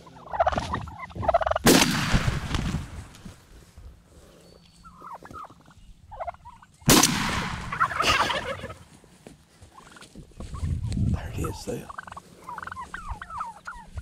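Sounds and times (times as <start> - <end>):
turkey gobbling: 0.0 - 1.7, 4.8 - 9.0, 9.6 - 14.0
turkeys clucking and yelping: 0.0 - 14.0.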